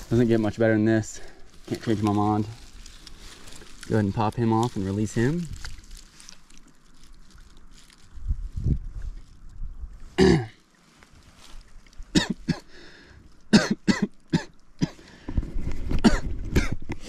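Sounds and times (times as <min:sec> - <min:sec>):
man clearing his throat: 0:10.2 - 0:10.6, 0:12.1 - 0:12.7, 0:16.0 - 0:16.8
man coughing: 0:10.2 - 0:10.6, 0:12.1 - 0:12.7, 0:13.5 - 0:15.0, 0:16.0 - 0:16.8.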